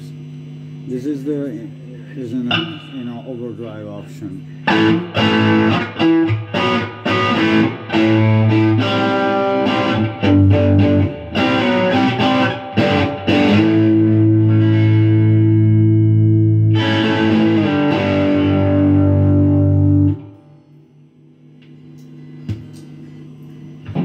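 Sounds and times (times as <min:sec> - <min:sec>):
overdriven electric guitar: 0:04.6 - 0:20.6.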